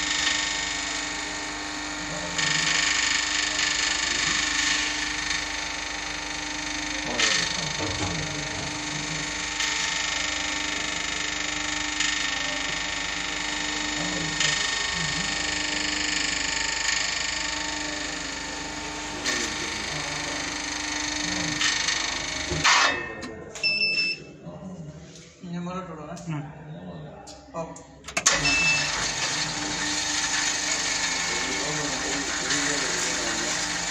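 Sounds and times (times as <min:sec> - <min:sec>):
lift drive humming: 0:28.0 - 0:33.9.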